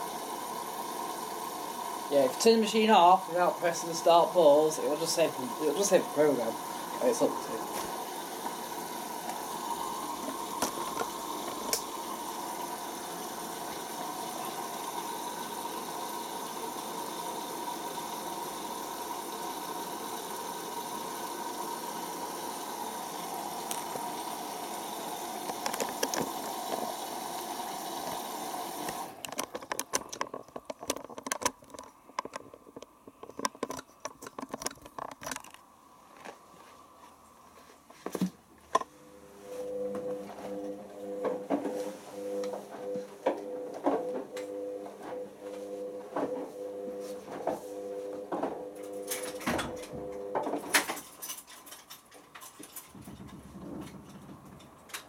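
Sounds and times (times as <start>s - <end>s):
water rushing into washing machine: 0.0s - 30.3s
faint whine: 38.7s - 51.0s.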